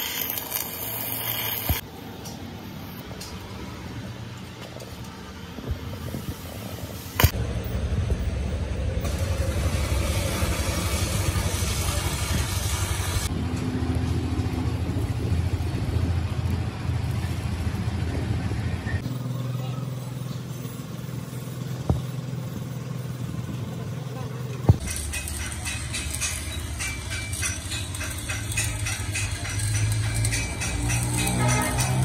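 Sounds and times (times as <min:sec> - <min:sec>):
welding arc crackling: 0:00.0 - 0:01.8, 0:07.1 - 0:07.4, 0:09.0 - 0:13.3, 0:24.7 - 0:32.0.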